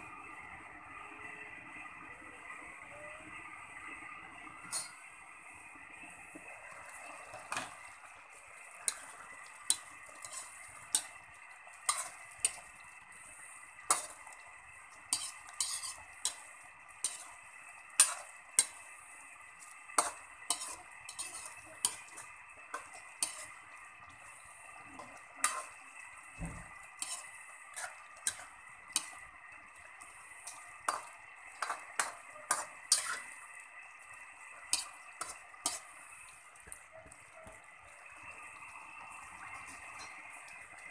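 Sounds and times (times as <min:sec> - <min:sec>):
cooking pan hissing: 0:00.0 - 0:40.9
metal spoon scraping metal pan: 0:04.6 - 0:05.0, 0:08.8 - 0:12.7, 0:13.8 - 0:14.4, 0:15.0 - 0:16.4, 0:17.0 - 0:17.3, 0:17.9 - 0:18.8, 0:20.0 - 0:23.6, 0:25.0 - 0:25.8, 0:27.0 - 0:29.2, 0:30.4 - 0:33.4, 0:34.7 - 0:36.0.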